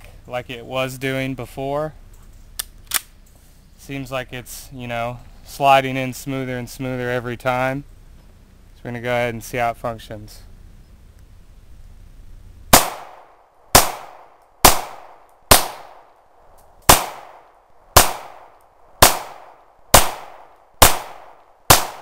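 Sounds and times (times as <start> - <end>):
pistol shots with echo: 12.7 - 16.1, 16.9 - 22.0.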